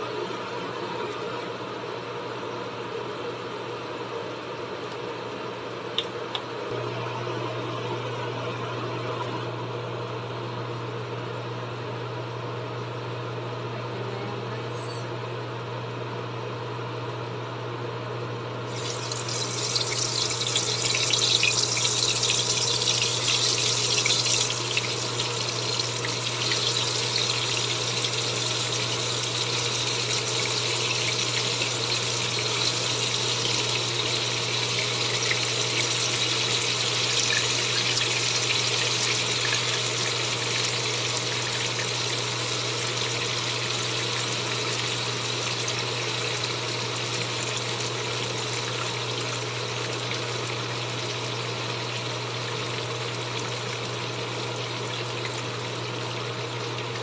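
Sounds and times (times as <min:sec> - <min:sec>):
chicken sizzling in hot oil: 0:18.7 - 0:57.0.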